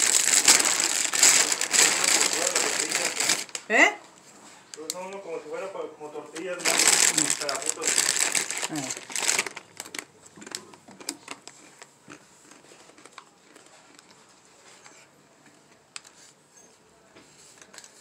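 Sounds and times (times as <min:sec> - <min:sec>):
foil crinkling: 0:00.0 - 0:03.7, 0:06.3 - 0:14.5.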